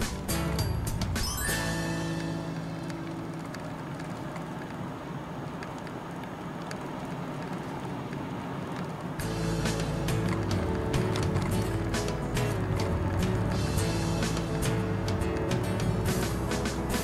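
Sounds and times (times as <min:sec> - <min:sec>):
background music: 0:00.0 - 0:04.5, 0:09.2 - 0:17.0
car road and engine noise: 0:00.0 - 0:17.0.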